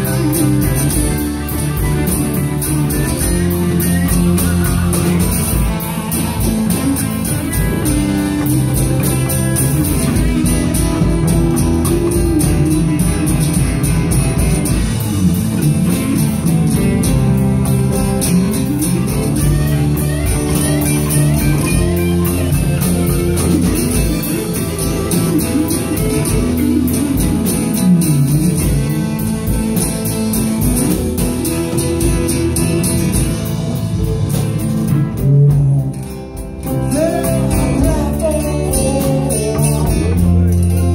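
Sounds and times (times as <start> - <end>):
drum kit beat: 0.0 - 40.9
sliding electric guitars: 0.0 - 40.9.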